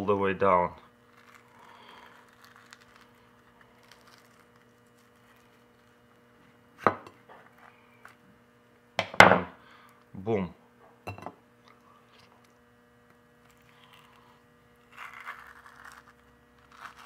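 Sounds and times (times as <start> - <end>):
slicer scraping avocado flesh: 13.7 - 17.0.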